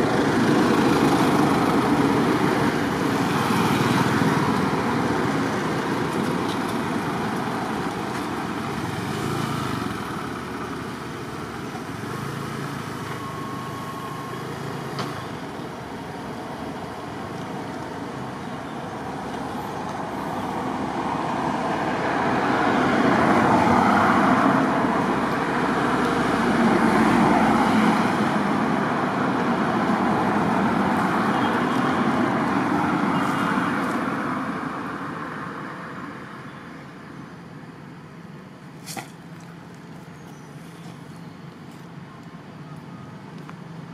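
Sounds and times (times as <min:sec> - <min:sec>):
vehicle passing: 0:00.0 - 0:13.0, 0:14.1 - 0:35.8
road traffic rush: 0:00.0 - 0:43.9.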